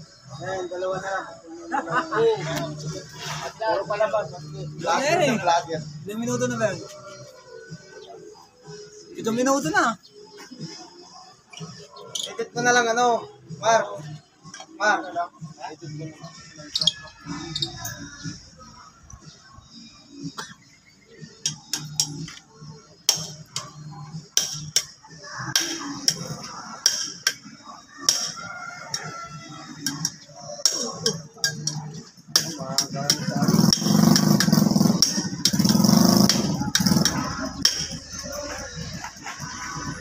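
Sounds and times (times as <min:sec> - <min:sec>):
men calling out: 0:35.6 - 0:40.0.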